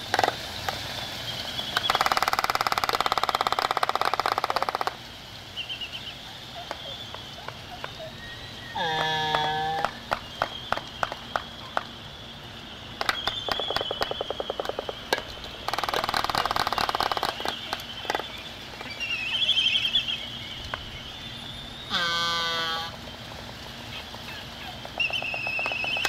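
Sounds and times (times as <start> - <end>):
bird call: 0.9 - 26.0
bird bills clacking: 5.6 - 12.0, 13.0 - 20.8, 23.9 - 26.0.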